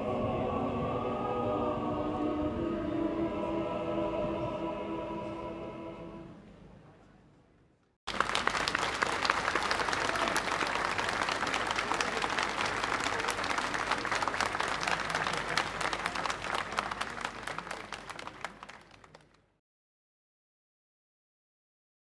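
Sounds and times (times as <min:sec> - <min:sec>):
large audience applauding: 0:08.1 - 0:19.4.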